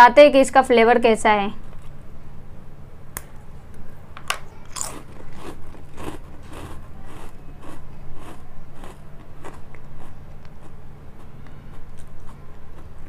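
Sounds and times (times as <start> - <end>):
crunchy chewing: 4.6 - 13.0.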